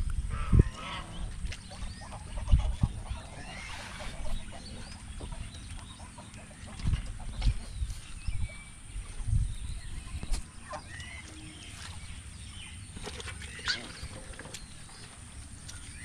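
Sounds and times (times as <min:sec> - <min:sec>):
domestic waterfowl calling: 0:00.3 - 0:07.8, 0:10.0 - 0:12.0, 0:13.4 - 0:14.3.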